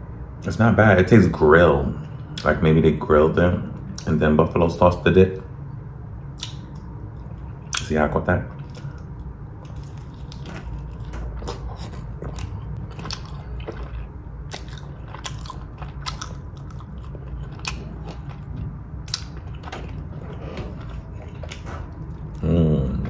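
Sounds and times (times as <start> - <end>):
low hum: 0.0 - 23.0
biting and chewing chicken wing: 8.5 - 23.0.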